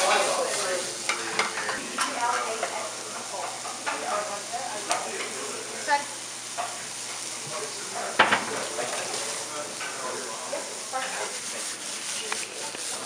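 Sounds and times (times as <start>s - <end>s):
mushrooms sizzling in oil: 0.0s - 13.0s
knocks against pan: 8.2s - 8.6s.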